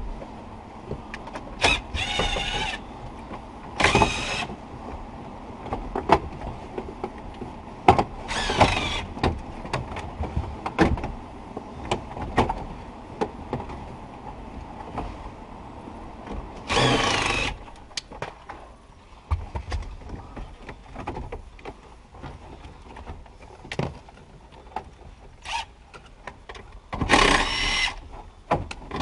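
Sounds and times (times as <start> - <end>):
cordless drill whining: 1.6 - 2.8, 3.8 - 4.5, 8.3 - 9.1, 16.7 - 17.6, 27.1 - 28.0.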